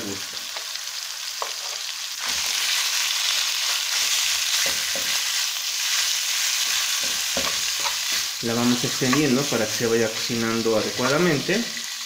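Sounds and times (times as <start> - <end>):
meat sizzling in hot oil: 0.0 - 12.0
spatula scraping pan: 3.6 - 11.9.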